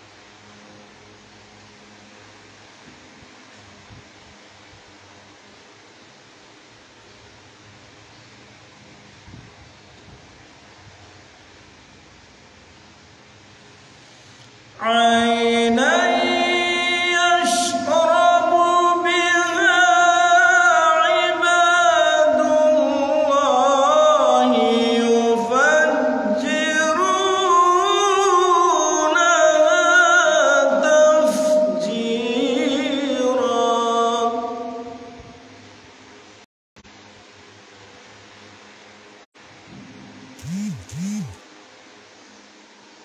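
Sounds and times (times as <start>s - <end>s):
man chanting melodically: 14.8s - 34.8s.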